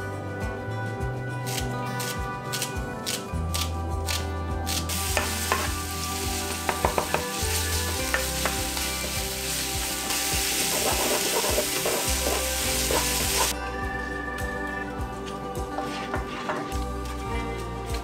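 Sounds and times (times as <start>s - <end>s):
onions sizzling in hot oil: 4.9s - 13.5s
spatula stirring and tapping pan: 5.1s - 13.5s.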